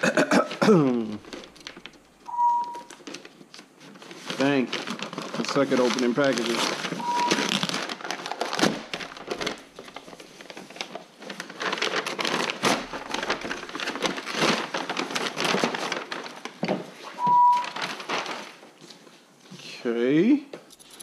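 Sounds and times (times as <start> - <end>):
short beep: 2.3 - 2.9, 7.0 - 7.5, 17.2 - 17.6
paper crinkling and tearing: 2.8 - 16.6, 17.6 - 18.7.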